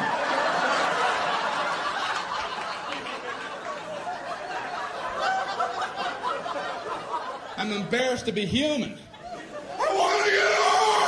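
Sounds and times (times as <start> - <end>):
audience laughing: 0.0 - 8.4, 9.0 - 10.0.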